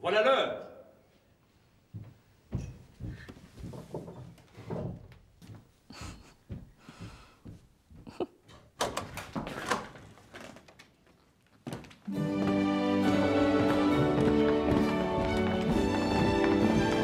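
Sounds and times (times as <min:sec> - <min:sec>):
wooden double doors swinging open: 0:08.5 - 0:10.8.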